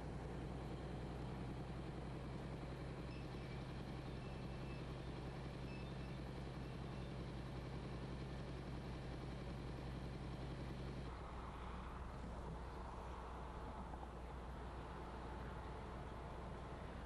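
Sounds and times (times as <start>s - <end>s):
crane engine droning: 0.0s - 17.0s
faint high squeaks: 3.0s - 7.2s.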